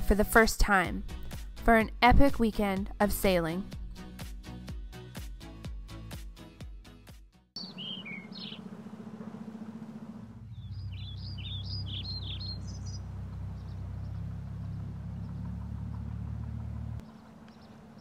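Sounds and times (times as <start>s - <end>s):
small bird chirping: 7.6s - 8.7s, 10.5s - 15.6s, 17.0s - 18.0s
low motor hum: 7.6s - 18.0s.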